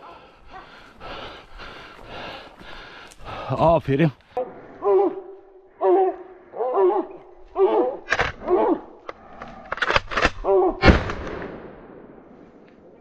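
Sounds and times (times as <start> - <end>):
dog barking: 0.1 - 0.8, 4.8 - 8.8
gunshots: 9.8 - 12.1.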